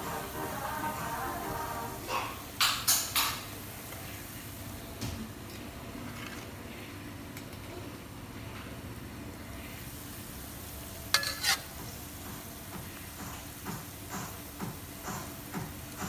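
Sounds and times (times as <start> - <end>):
peanuts frying in oil: 0.0 - 16.0.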